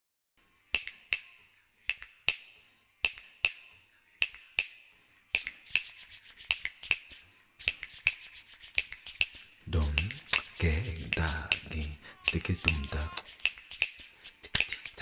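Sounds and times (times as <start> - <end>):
finger snaps: 0.7 - 1.3, 1.9 - 3.6, 4.2 - 4.8, 5.4 - 15.0.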